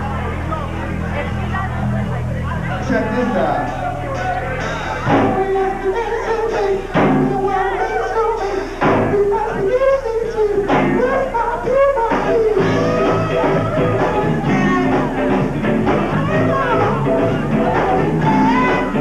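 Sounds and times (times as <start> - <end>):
bass guitar: 0.0 - 19.0
drums: 0.0 - 19.0
funk band playing: 0.0 - 19.0
woman singing: 16.1 - 19.0.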